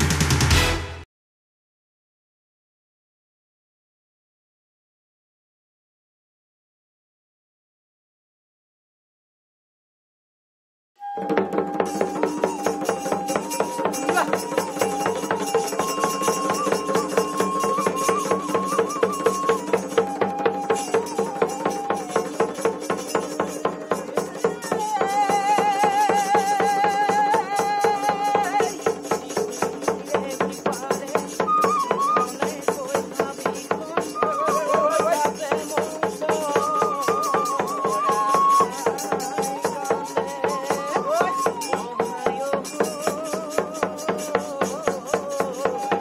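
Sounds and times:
pipe melody: 11.0 - 28.8
hand cymbals clashing: 11.8 - 26.9, 27.6 - 41.8.

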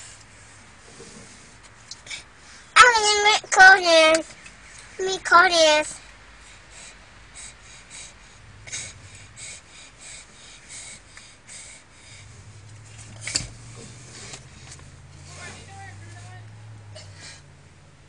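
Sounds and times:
seatbelt webbing rustling: 12.2 - 16.4.

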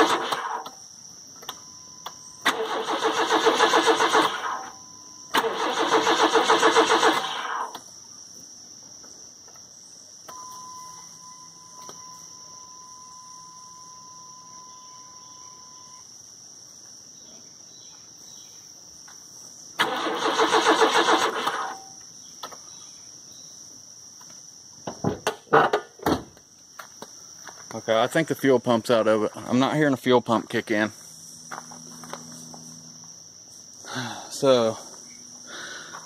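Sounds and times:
engine cranking by starter: 0.0 - 0.8, 2.4 - 7.8, 19.8 - 22.0
insects chirping: 0.0 - 36.0.

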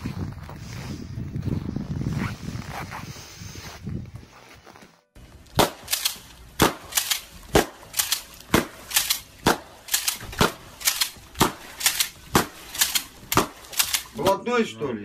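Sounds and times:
sharp cracks: 5.5 - 14.3.

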